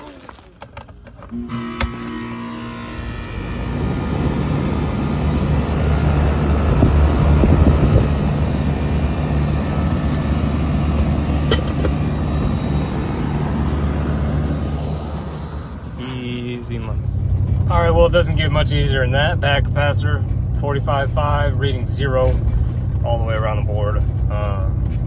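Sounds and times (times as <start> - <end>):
condenser fan rushing: 0.0 - 20.2
compressor hum: 0.0 - 25.0.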